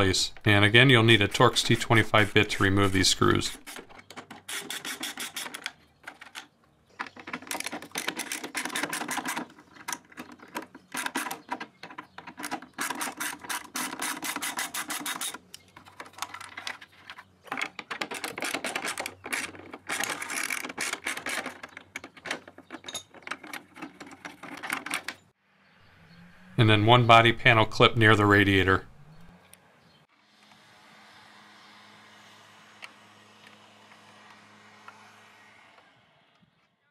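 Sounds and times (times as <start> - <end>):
hand ratchet clicking: 12.2 - 15.4.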